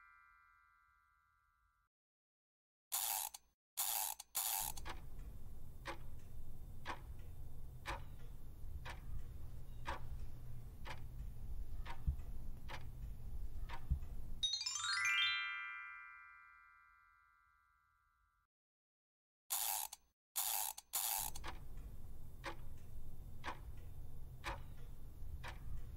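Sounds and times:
clock ticking: 3.9 - 14.4, 20.4 - 25.9
rising chime run: 14.4 - 17.5.

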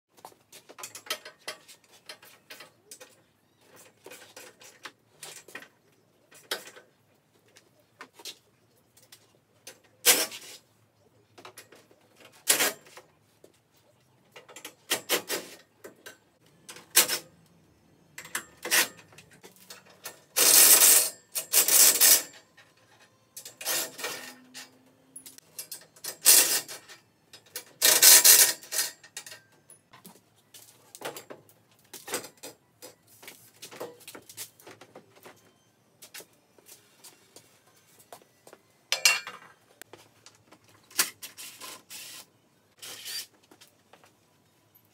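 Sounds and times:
tools and metal parts clanking: 0.3 - 7.0, 18.2 - 30.2, 38.9 - 39.8.

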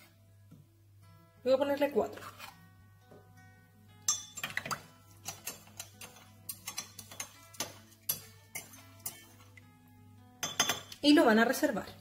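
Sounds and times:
soft background music: 0.0 - 12.0
metal spoon clinking in glass jug: 4.1 - 9.5, 10.4 - 11.0.

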